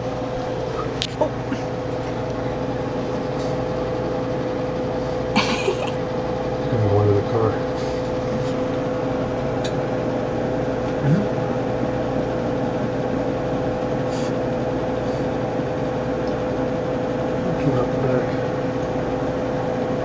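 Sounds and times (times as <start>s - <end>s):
steady mechanical hum: 0.0s - 20.0s.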